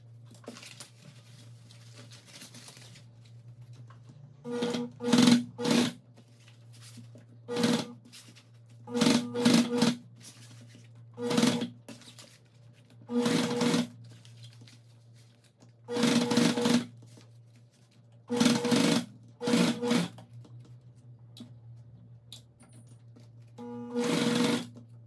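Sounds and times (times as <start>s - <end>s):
sewing machine stitching: 4.5s - 6.0s, 7.5s - 8.0s, 8.9s - 10.0s, 11.2s - 11.8s, 13.1s - 14.0s, 15.9s - 17.0s, 18.3s - 20.2s, 23.6s - 24.8s.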